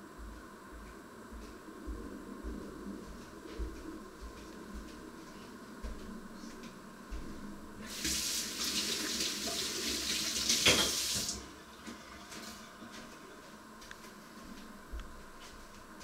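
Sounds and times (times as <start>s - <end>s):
water running from tap: 7.9s - 11.4s.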